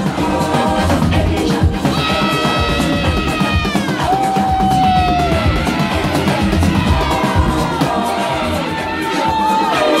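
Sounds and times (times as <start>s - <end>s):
dance music over sound system: 0.0s - 10.0s
person singing: 0.0s - 10.0s.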